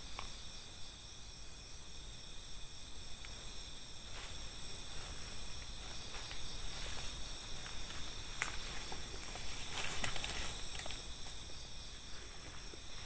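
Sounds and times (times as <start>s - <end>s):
night insects chirring: 0.0s - 13.0s
faint rustles in undergrowth: 3.0s - 13.0s.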